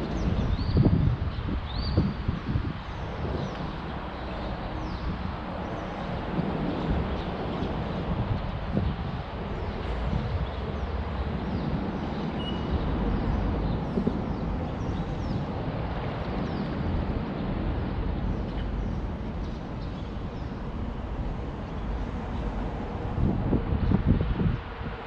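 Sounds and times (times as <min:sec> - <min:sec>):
traffic rumble on bridge: 0:00.0 - 0:25.0
faint bird chirps: 0:12.4 - 0:12.7.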